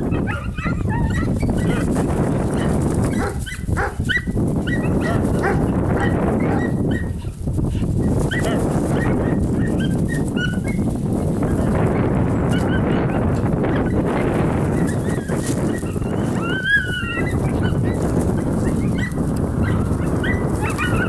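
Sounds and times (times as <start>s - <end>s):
dog whining and yipping: 0.0s - 1.9s, 2.6s - 7.3s, 8.2s - 10.9s, 12.4s - 14.1s, 14.7s - 21.0s.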